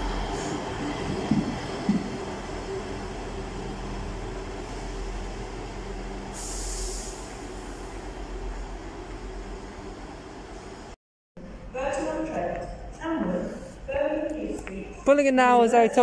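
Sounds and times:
diesel train engine drone: 0.0 - 11.7
short hiss: 6.4 - 7.3.

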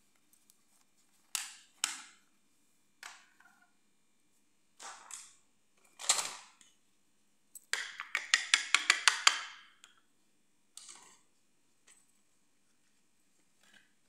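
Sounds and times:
plastic clicking on marble floor: 1.3 - 2.2, 7.6 - 10.0.

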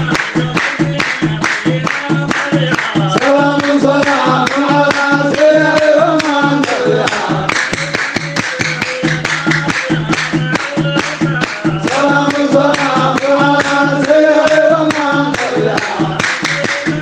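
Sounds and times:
steady beat: 0.0 - 17.0
voices chanting: 0.0 - 17.0.

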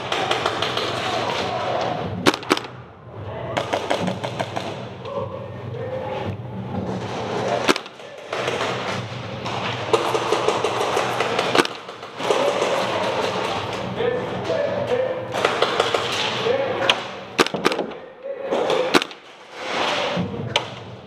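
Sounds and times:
airsoft guns firing: 0.0 - 1.4, 2.2 - 2.8, 3.6 - 4.8, 7.6 - 13.6, 15.3 - 16.2, 17.4 - 18.0, 18.8 - 19.4
sharp crack: 2.2 - 2.8, 7.6 - 12.4, 17.0 - 18.0, 18.8 - 20.7.

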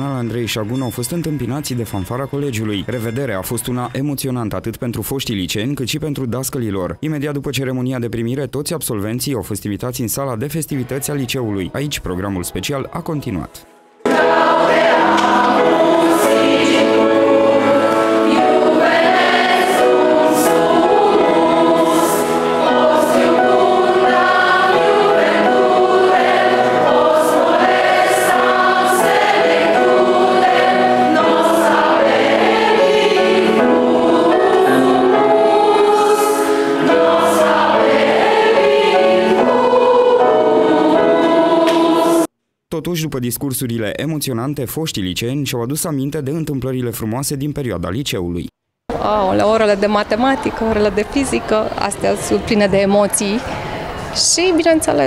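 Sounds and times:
choir singing slow song: 14.0 - 42.3.

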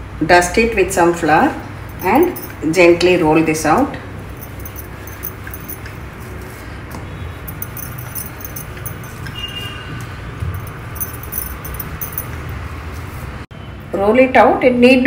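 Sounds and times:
faint metallic clinks: 1.9 - 2.7, 4.3 - 6.0, 7.5 - 12.6.

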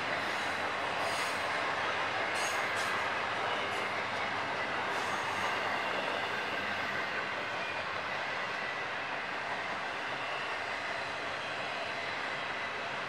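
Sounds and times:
freight train rumbling past: 0.0 - 13.0.

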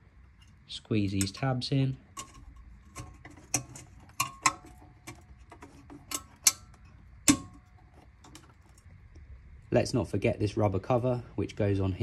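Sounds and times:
metallic clicks of spring clip: 6.1 - 7.6.

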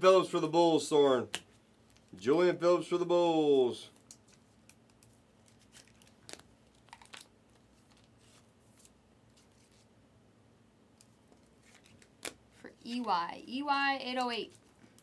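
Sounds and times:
cards and plastic sleeves rustling: 3.8 - 9.9, 11.0 - 13.2, 14.0 - 15.0.

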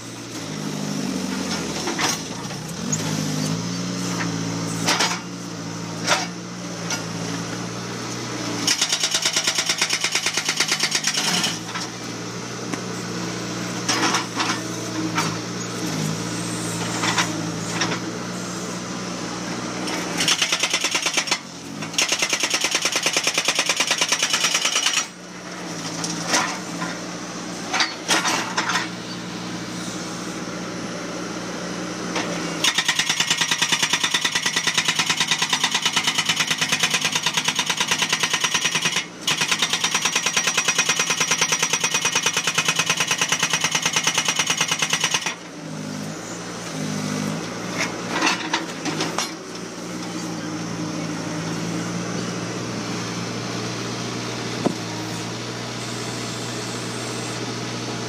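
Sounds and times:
engine running steadily: 0.0 - 58.0
hydraulic breaker pounding concrete: 4.2 - 5.4, 8.6 - 12.0, 19.8 - 27.0, 27.7 - 29.0, 32.2 - 49.6, 54.6 - 55.4.

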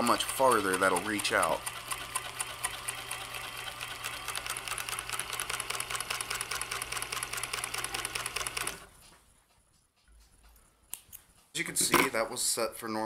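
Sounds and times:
sewing machine running: 0.0 - 9.0.

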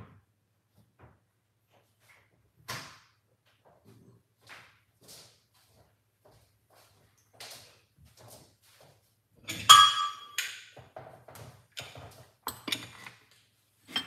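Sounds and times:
kitchenware clinking: 9.5 - 10.8, 11.8 - 13.3.

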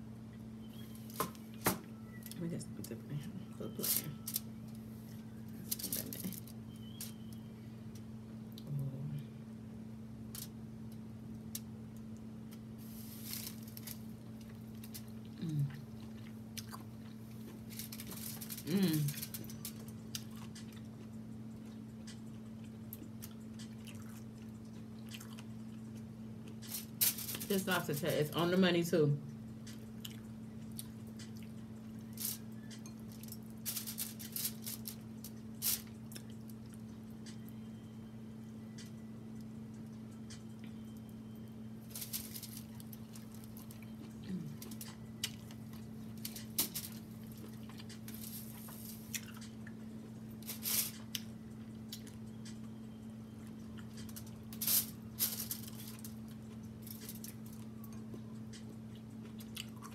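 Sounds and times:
steady low hum: 0.0 - 59.9
person humming mm: 15.4 - 15.9, 18.6 - 19.2.

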